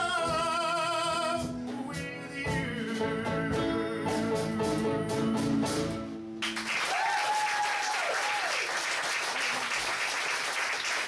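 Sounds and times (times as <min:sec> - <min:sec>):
piano and upright bass chord: 0:00.0 - 0:06.6
audience applauding: 0:06.4 - 0:11.0.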